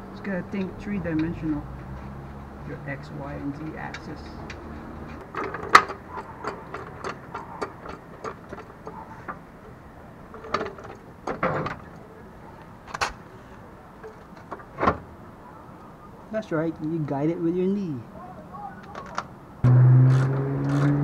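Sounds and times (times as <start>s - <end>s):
tools knocking on metal parts: 3.9s - 11.9s.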